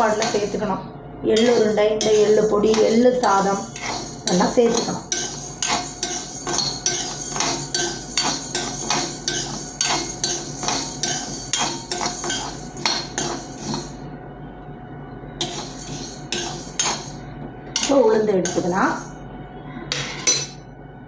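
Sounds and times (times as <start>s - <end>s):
spoon scraping grains in pan: 1.4s - 14.0s, 15.4s - 17.2s.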